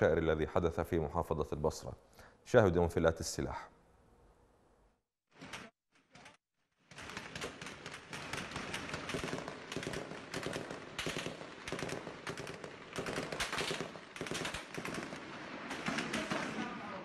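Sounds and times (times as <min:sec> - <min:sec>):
automatic gunfire: 0:06.9 - 0:17.0.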